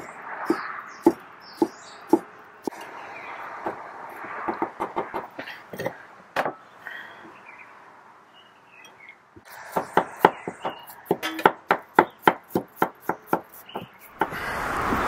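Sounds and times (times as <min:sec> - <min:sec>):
knife chopping on wooden board: 0:09.7 - 0:14.4.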